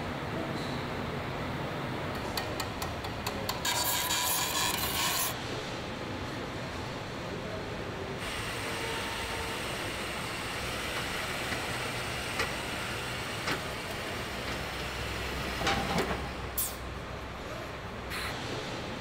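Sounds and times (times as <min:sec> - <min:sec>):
steady factory hum: 0:00.0 - 0:19.0
sharp clicks and knocks: 0:02.1 - 0:05.4.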